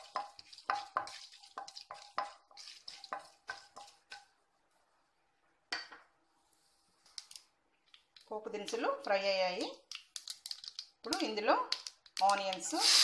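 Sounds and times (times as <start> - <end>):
seeds popping in hot oil: 7.1 - 13.0.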